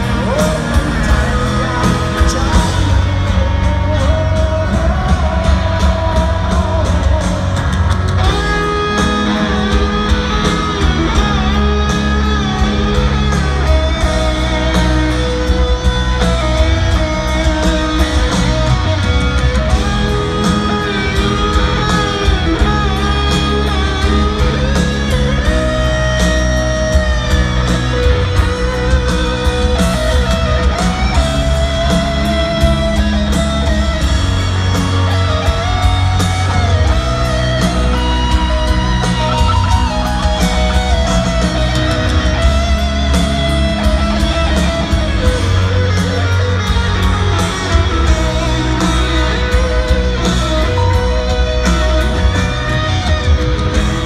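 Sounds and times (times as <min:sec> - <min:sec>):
electric guitar solo: 0:00.0 - 0:54.0
live rock band: 0:00.0 - 0:54.0.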